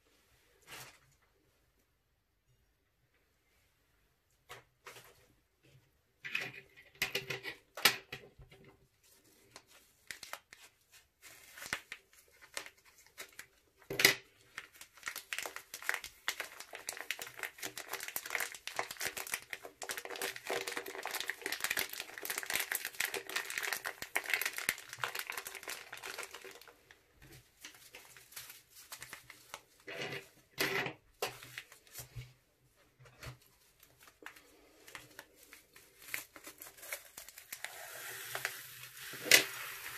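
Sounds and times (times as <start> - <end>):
plastic bag crinkling: 14.4 - 30.4, 33.6 - 39.9.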